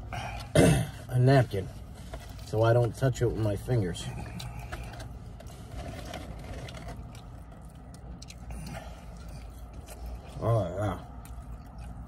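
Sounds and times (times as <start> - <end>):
person eating: 4.2 - 12.0.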